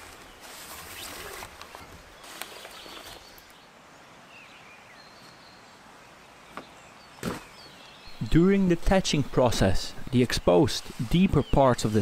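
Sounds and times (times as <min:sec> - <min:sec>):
rustling handling noise: 0:00.0 - 0:03.5.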